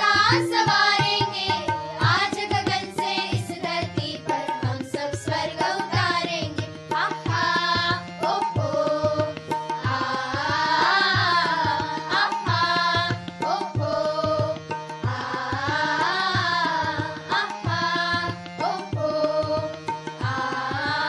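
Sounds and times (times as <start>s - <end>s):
children singing: 0.0s - 3.8s, 9.9s - 21.0s
tabla drums: 0.0s - 21.0s.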